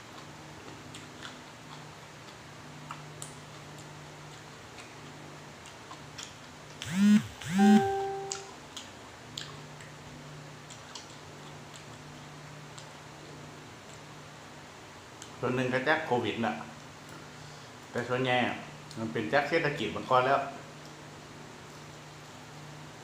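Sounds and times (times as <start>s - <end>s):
person chewing food: 0.0s - 6.8s, 8.7s - 10.0s, 10.6s - 13.0s.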